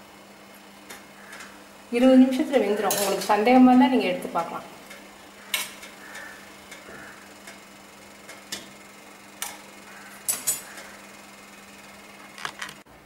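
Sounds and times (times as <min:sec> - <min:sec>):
steel kitchenware clicking: 0:02.8 - 0:03.4.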